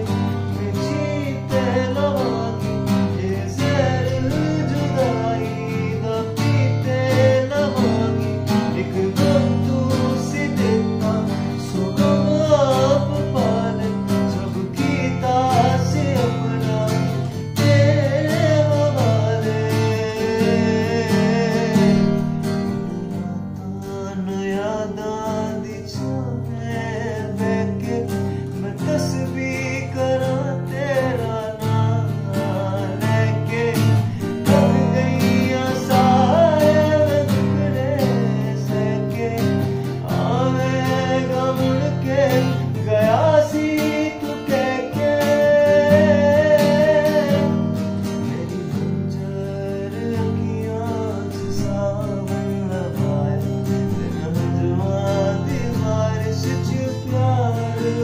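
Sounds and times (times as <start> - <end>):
acoustic guitar strumming: 0.0 - 58.0
man singing: 0.0 - 58.0.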